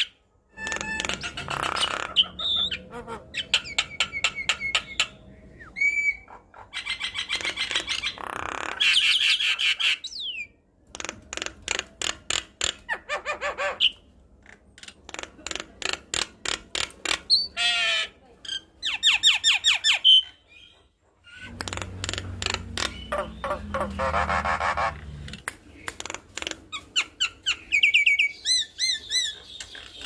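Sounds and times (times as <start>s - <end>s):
bird harsh squawk: 0.0s - 10.5s, 22.4s - 25.2s
bird chattering song: 0.0s - 14.1s, 14.8s - 30.0s.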